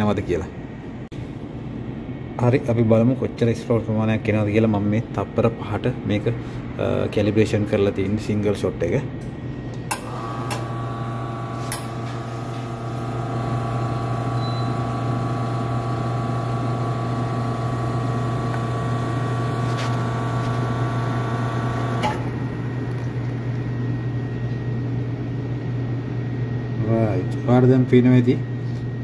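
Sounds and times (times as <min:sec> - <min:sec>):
espresso machine pump humming: 0:09.9 - 0:25.1.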